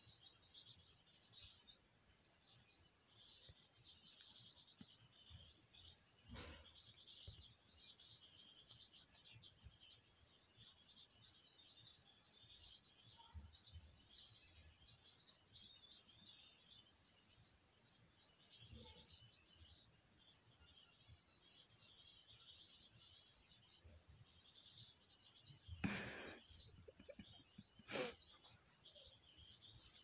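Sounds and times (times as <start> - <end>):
small birds chirping: 0.0 - 30.0.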